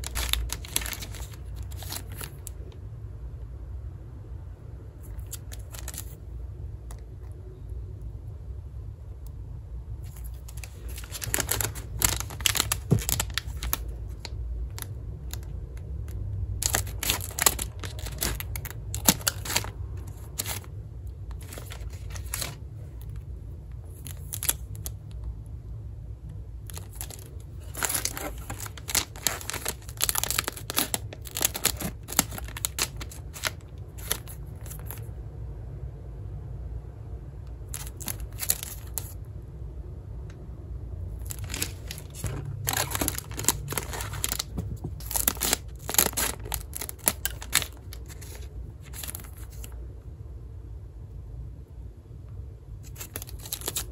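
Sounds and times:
plastic wrappers crinkling and tearing: 0.0 - 2.7, 5.0 - 6.2, 10.0 - 15.9, 16.6 - 23.2, 23.9 - 25.1, 26.6 - 35.1, 37.7 - 39.2, 41.2 - 49.8, 52.8 - 53.9
steady low hum: 0.0 - 53.9.

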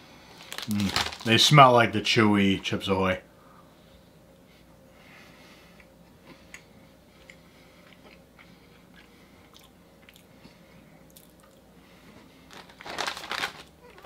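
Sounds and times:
person chewing with mouth clicks: 5.8 - 10.3, 11.0 - 11.7.

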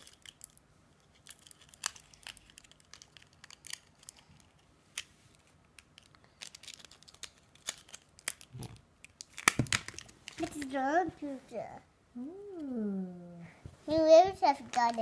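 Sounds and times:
foil wrapper crinkling: 0.0 - 4.3, 5.9 - 10.7.

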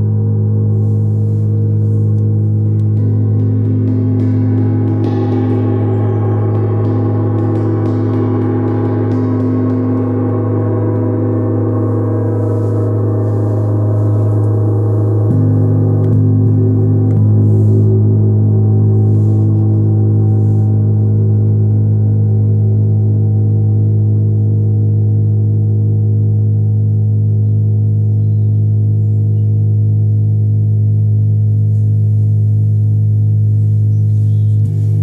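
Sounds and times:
gong ringing: 0.0 - 26.0.

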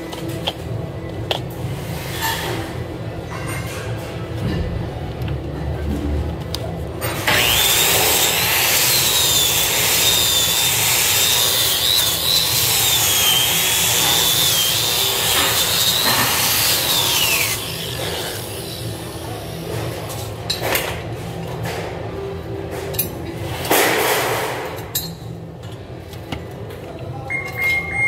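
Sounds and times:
angle grinder motor whining: 7.2 - 18.4.

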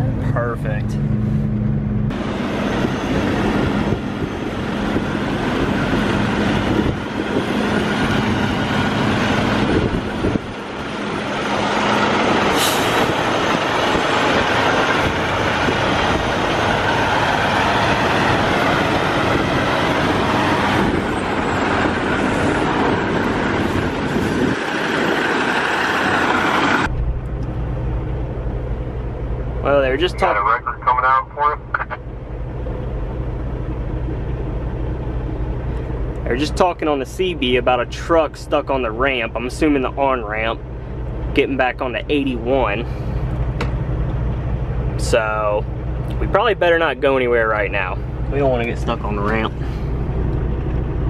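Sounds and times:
truck engine hum from cab: 0.0 - 51.0
truck engine rushing: 0.0 - 51.0
short sharp hiss: 12.6 - 13.0.

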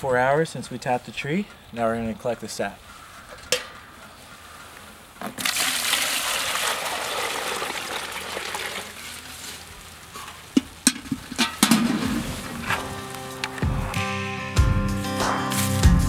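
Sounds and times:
sap pouring into plastic pail: 5.2 - 9.4.

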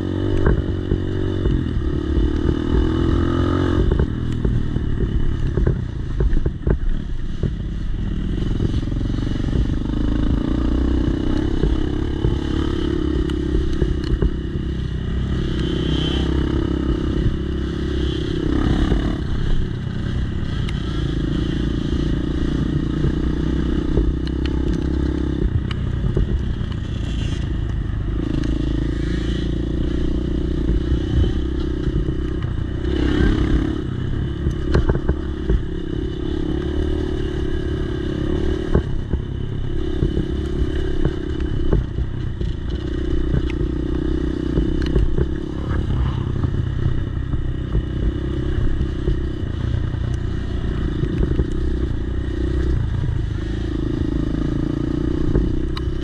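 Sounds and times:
dirt bike engine revving: 0.0 - 5.2, 8.1 - 56.0
rattles and clicks over bumps: 0.2 - 15.7, 21.5 - 28.8, 29.4 - 56.0.

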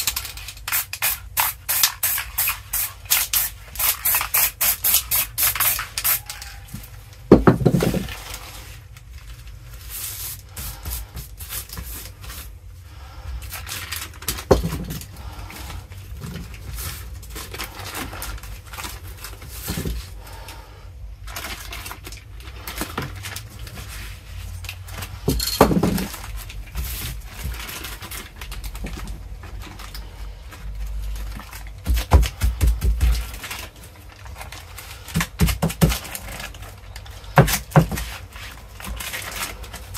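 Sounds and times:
spray can hissing: 0.7 - 6.2
paper crinkling and rustling: 6.0 - 12.7, 13.4 - 20.2, 21.1 - 39.9.

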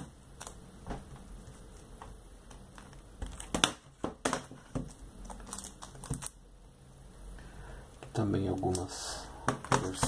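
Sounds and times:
plastic sleeve rustling: 0.4 - 6.4
plastic cases clicking and knocking: 2.5 - 5.0, 9.4 - 10.0.

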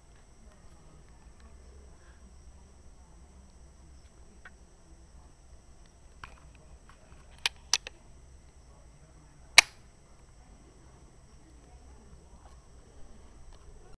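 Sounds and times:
sharp clicks: 7.4 - 8.0, 9.6 - 9.8.

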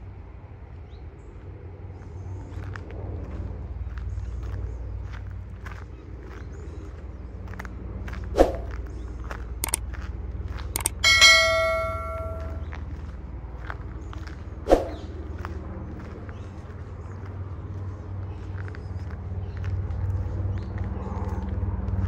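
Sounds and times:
bell ding: 10.8 - 12.6.

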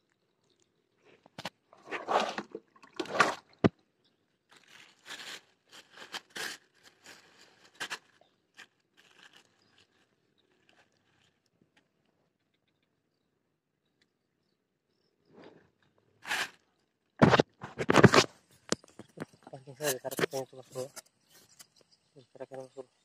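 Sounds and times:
dry straw crunching and rustling: 4.5 - 11.5.

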